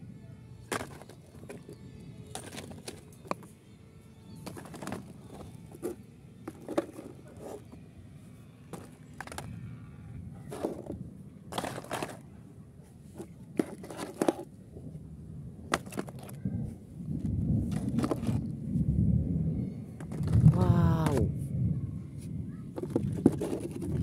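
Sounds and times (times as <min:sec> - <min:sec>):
plastic toy cars clicking and knocking: 0:00.7 - 0:03.5, 0:04.4 - 0:07.8, 0:08.7 - 0:09.7, 0:10.4 - 0:12.3, 0:13.0 - 0:14.5, 0:15.7 - 0:16.6, 0:17.2 - 0:18.5, 0:20.0 - 0:21.3, 0:22.7 - 0:24.0.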